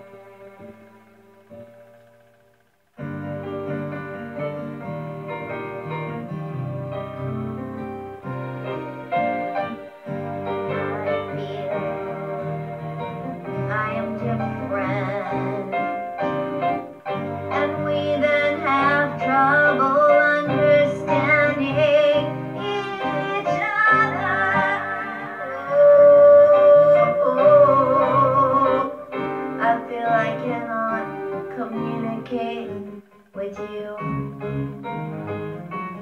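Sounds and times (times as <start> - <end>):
instrumental accompaniment: 0.0 - 36.0
person singing with vibrato: 9.6 - 34.7.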